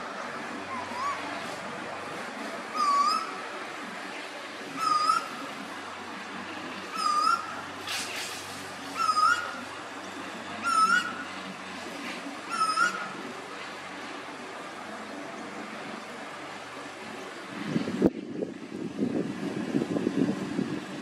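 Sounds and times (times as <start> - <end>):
bird calling upslurred notes: 0.6 - 1.6, 2.7 - 3.6, 4.7 - 5.8, 6.6 - 7.8, 8.8 - 11.6, 12.4 - 13.4.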